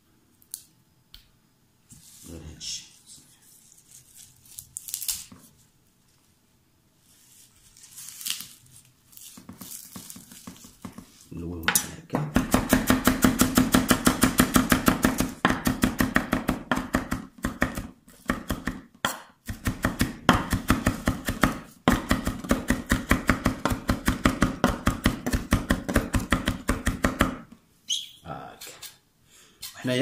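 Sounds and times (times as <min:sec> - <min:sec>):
knife chopping on wooden board: 0:11.7 - 0:27.4.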